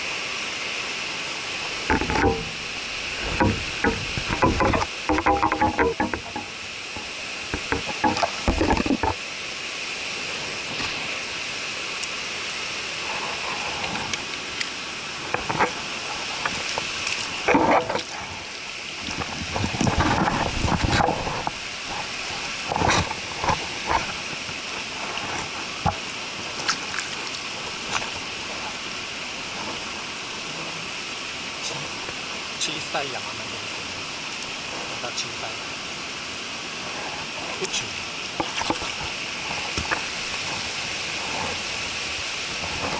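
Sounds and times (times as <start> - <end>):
mountain stream running: 0.0 - 42.9
splashing in shallow water: 10.2 - 32.3, 36.8 - 42.9.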